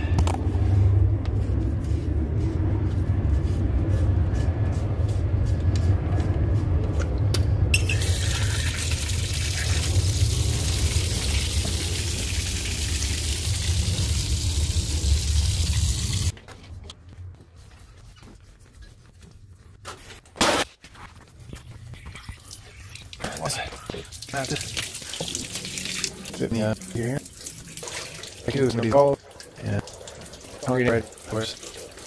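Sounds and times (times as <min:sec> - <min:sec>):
low rumble: 0:00.0 - 0:07.8, 0:09.0 - 0:16.3
water gushing from hose bib: 0:07.8 - 0:16.3, 0:22.3 - 0:32.0.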